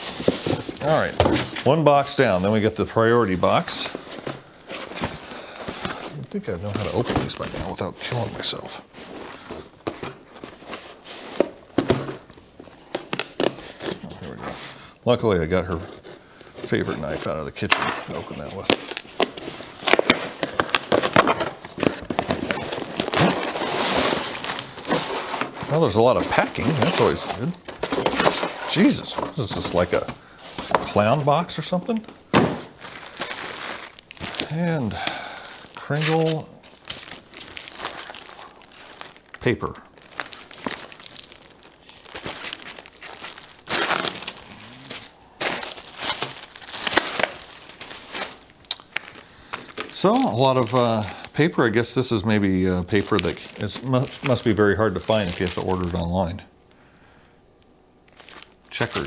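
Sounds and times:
plastic bags crinkling: 0:00.0 - 0:14.0, 0:16.6 - 0:56.4, 0:58.0 - 0:59.0
tape cracking on cardboard box: 0:17.6 - 0:25.6
cardboard tearing rustle: 0:18.1 - 0:31.2, 0:32.4 - 0:51.1.

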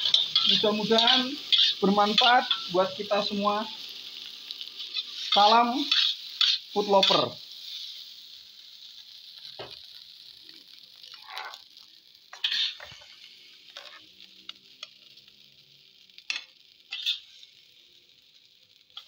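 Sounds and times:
spatula scraping a wok: 0:00.0 - 0:03.0, 0:04.7 - 0:08.1, 0:12.3 - 0:14.2, 0:16.3 - 0:17.6
rice sizzling in a wok: 0:00.0 - 0:19.0.

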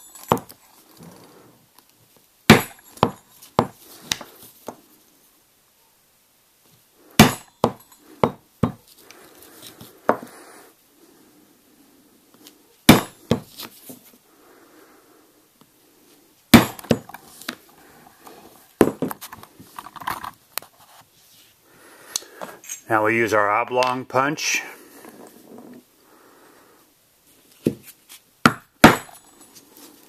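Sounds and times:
mallet striking steel punch: 0:02.5 - 0:03.2, 0:07.2 - 0:08.8, 0:12.9 - 0:13.4, 0:16.6 - 0:17.0, 0:28.5 - 0:29.2
rustling of leather strap: 0:08.8 - 0:10.4, 0:13.3 - 0:14.2, 0:17.0 - 0:21.6, 0:29.2 - 0:30.0.

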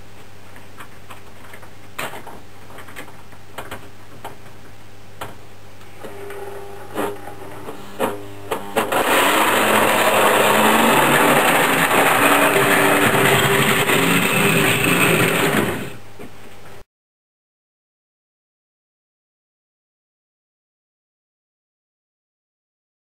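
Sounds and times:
electric motor gear whir: 0:08.0 - 0:16.0.

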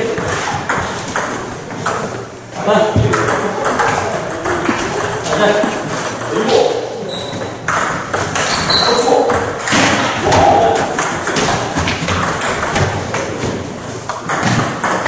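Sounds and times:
voices in a hall: 0:00.0 - 0:12.0
ball striking paddles and table: 0:00.0 - 0:15.0.

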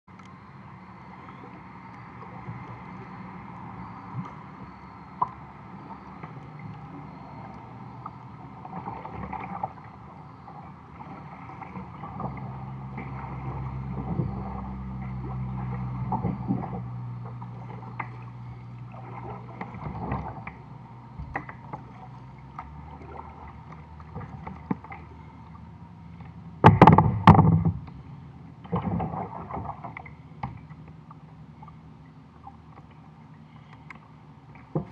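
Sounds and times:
water sloshing against kayak hull: 0:01.0 - 0:34.9
knocks on plastic hull: 0:26.6 - 0:27.8.

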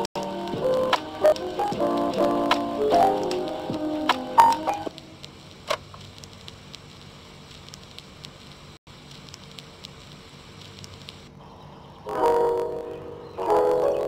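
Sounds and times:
background music with held notes: 0:00.0 - 0:04.9, 0:12.1 - 0:14.0
crackling hiss with soft ticks: 0:00.0 - 0:11.4.

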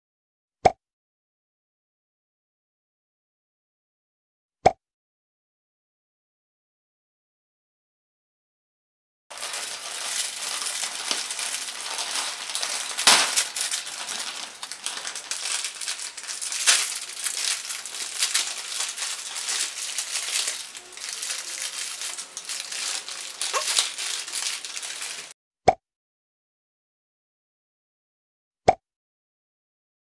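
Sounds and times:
plastic wrappers crinkling: 0:09.3 - 0:25.3.

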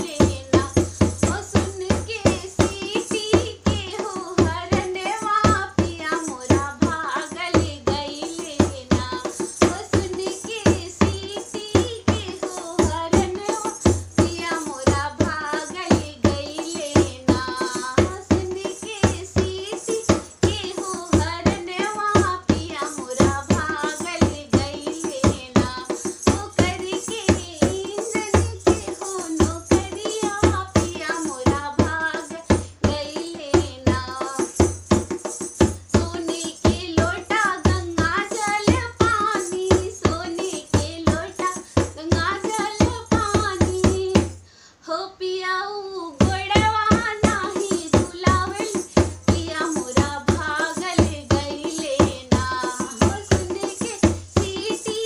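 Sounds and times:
steady drum beat: 0:00.0 - 0:44.4, 0:46.2 - 0:55.0
woman singing folk song: 0:00.0 - 0:55.0.

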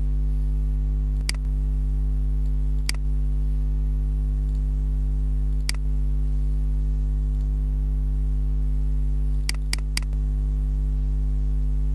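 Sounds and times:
electrical hum: 0:00.0 - 0:11.9
computer mouse clicks: 0:01.2 - 0:01.5, 0:02.4 - 0:03.0, 0:05.5 - 0:05.8, 0:09.3 - 0:10.2.

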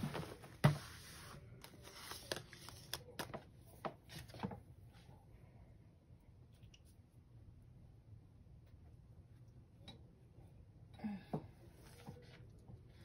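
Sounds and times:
soft paper rustling: 0:00.0 - 0:05.2.

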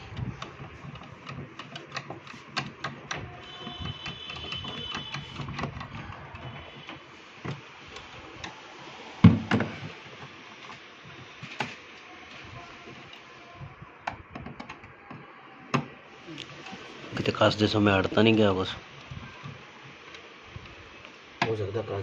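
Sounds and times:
plastic panels clicking and rattling: 0:00.0 - 0:08.6, 0:14.0 - 0:16.0.

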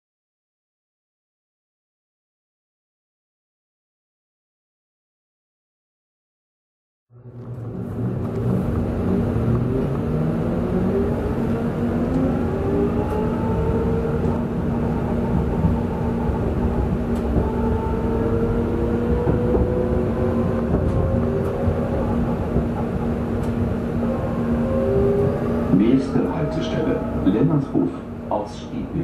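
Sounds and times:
running gear rumbling: 0:07.2 - 0:28.3
traction motors whining: 0:07.2 - 0:28.6
steady hum: 0:07.2 - 0:29.0.

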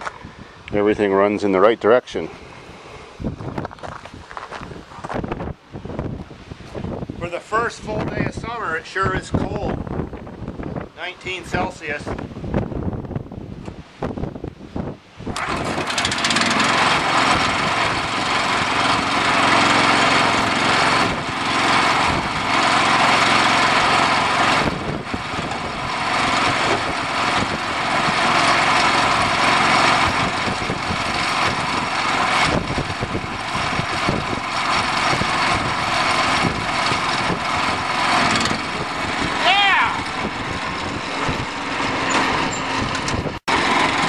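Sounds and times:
lawn tractor engine running: 0:15.3 - 0:44.0.

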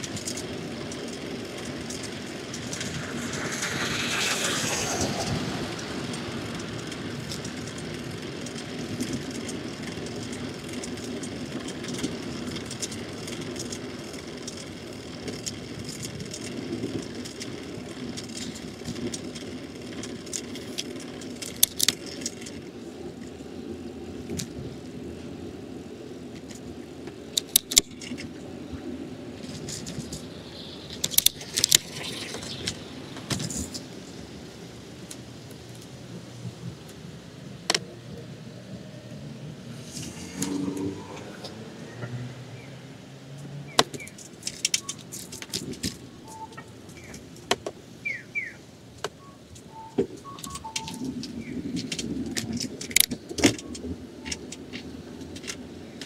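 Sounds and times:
street traffic: 0:00.0 - 0:56.0
vehicle passing: 0:01.3 - 0:08.8, 0:30.2 - 0:34.3, 0:38.6 - 0:43.8.

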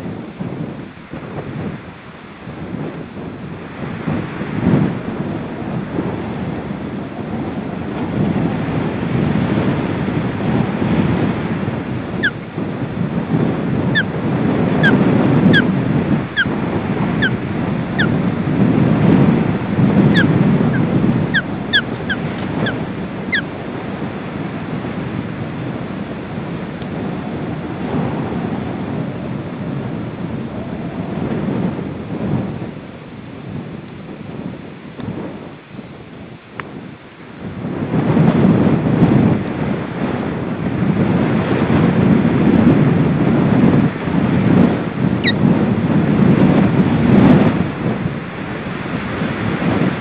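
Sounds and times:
wind buffeting microphone: 0:00.0 - 0:50.0
osprey whistled calls: 0:12.2 - 0:12.4, 0:14.8 - 0:15.7, 0:16.4 - 0:16.6, 0:17.2 - 0:18.2, 0:20.1 - 0:23.5, 0:45.2 - 0:45.4.

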